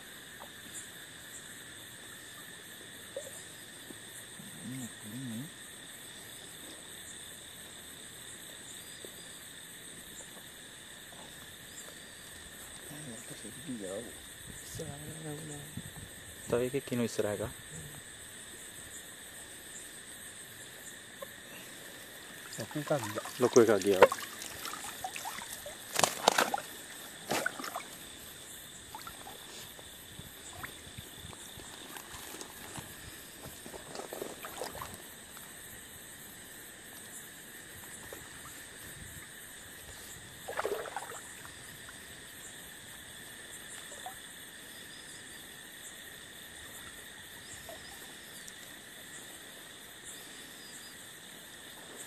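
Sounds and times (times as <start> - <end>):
crickets chirping: 0.0 - 52.0
steady river hiss: 0.0 - 52.0
water splashing: 22.2 - 32.7, 33.8 - 35.2, 40.4 - 42.0
small splashes and ticks: 22.3 - 35.6, 40.4 - 42.3.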